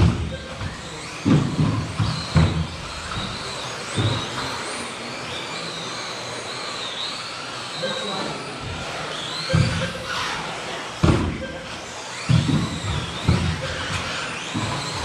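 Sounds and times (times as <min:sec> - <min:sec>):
rc car motors whining: 0:00.0 - 0:15.0.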